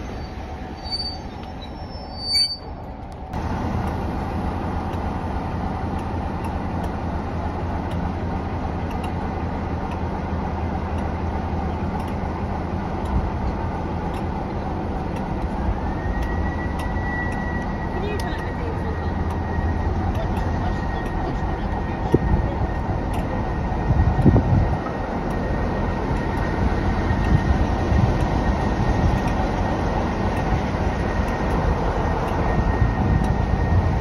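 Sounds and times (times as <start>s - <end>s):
brief shrill tone: 0.0s - 2.8s
diesel locomotive engine drone: 0.0s - 34.0s.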